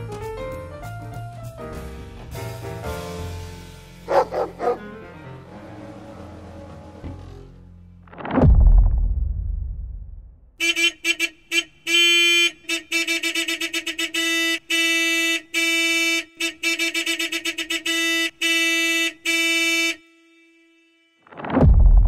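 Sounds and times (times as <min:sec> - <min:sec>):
car horn honking: 0:10.6 - 0:21.4.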